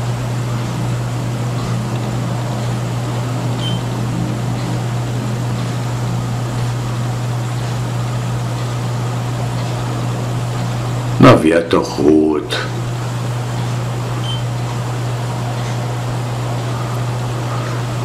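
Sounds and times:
radio receiver hiss and hum: 0.0s - 18.0s.

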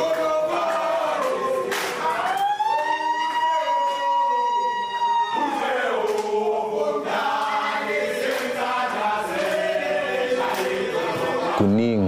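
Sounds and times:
men singing in chorus: 0.0s - 2.2s, 5.4s - 11.7s.

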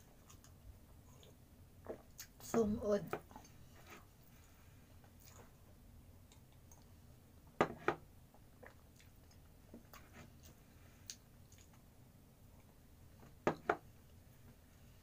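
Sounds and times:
faint eating clicks: 6.2s - 7.0s.

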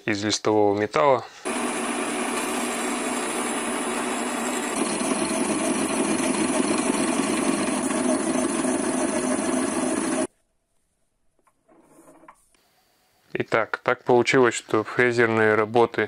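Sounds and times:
lathe machining metal: 1.5s - 10.3s.

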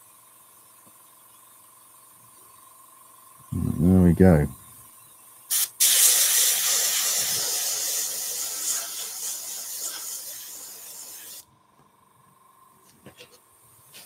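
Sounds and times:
airbrush spraying hiss: 5.5s - 11.4s.

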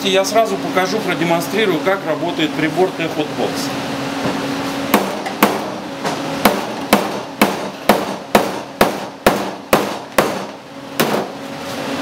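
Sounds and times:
hammer striking steel panel: 4.9s - 5.8s, 6.4s - 11.4s.

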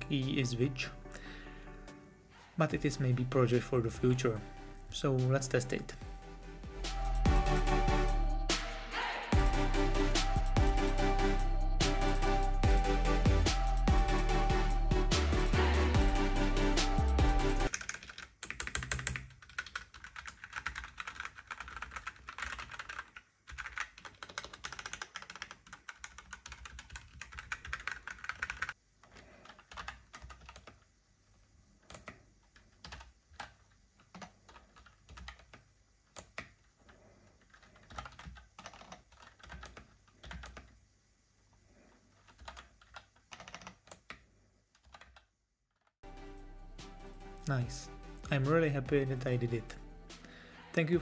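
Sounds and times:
typing on mechanical keyboard: 17.7s - 30.8s, 31.8s - 40.8s, 42.1s - 46.0s.

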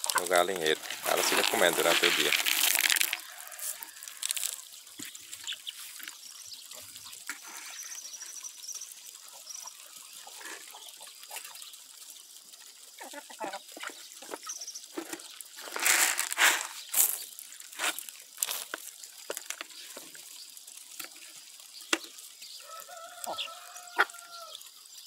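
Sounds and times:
chickens chirping: 0.0s - 2.4s, 3.3s - 8.5s, 9.2s - 11.8s, 12.9s - 15.0s, 22.6s - 24.6s
chickens scuffling: 0.0s - 6.2s, 13.1s - 20.2s
chickens pecking corn: 0.0s - 8.4s, 9.1s - 24.6s.

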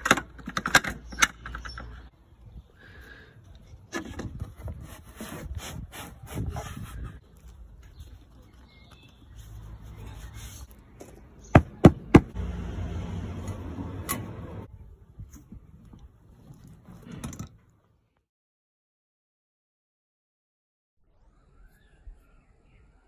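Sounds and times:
handling and rubbing noises: 3.9s - 11.6s.

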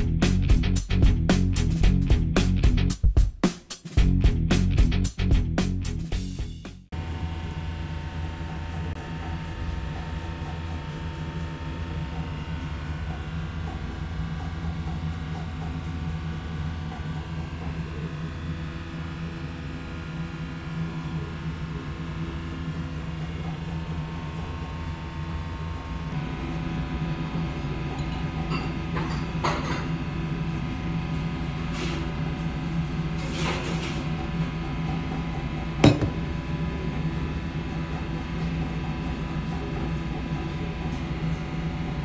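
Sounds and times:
glass clink: 28.0s - 29.9s.

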